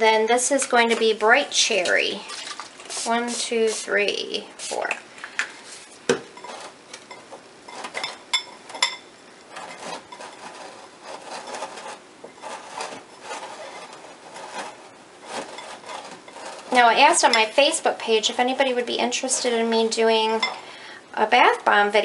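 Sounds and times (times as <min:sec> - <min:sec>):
powder scraping against glass: 0:05.6 - 0:17.8.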